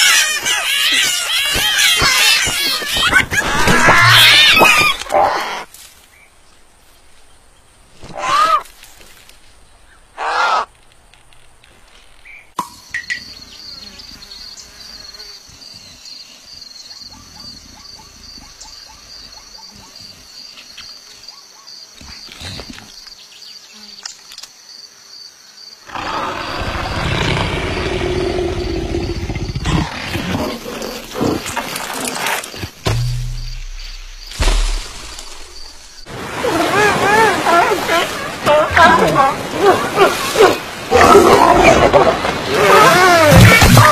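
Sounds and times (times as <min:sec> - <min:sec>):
high insect-like buzz: 0:12.6 - 0:16.7, 0:30.4 - 0:36.1
cartoon leopard rough cry: 0:38.8 - 0:43.9.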